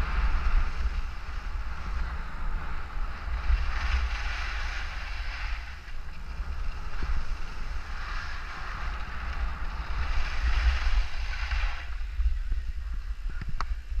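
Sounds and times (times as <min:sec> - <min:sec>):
skis hissing over snow: 0:00.0 - 0:12.8
wind buffeting microphone: 0:00.0 - 0:14.0.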